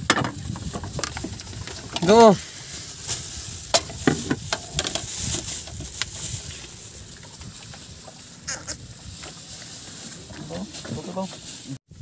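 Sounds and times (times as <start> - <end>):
plastic bag crinkling: 1.2 - 7.2.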